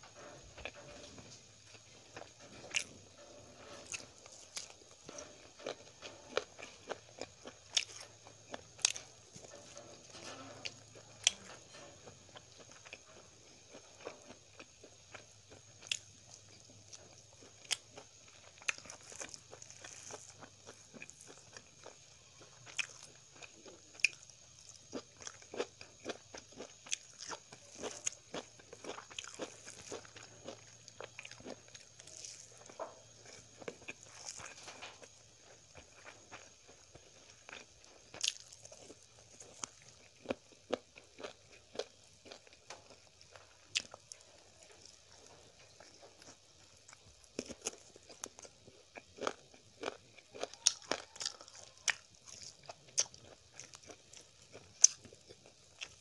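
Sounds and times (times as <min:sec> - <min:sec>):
faint steady hum: 0:00.0 - 0:56.0
person chewing crunchy food: 0:00.0 - 0:56.0.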